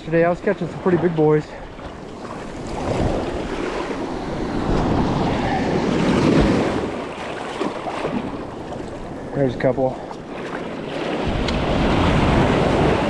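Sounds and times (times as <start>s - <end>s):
wind buffeting microphone: 0.0s - 13.0s
surf breaking on sand: 2.2s - 8.6s, 10.4s - 13.0s.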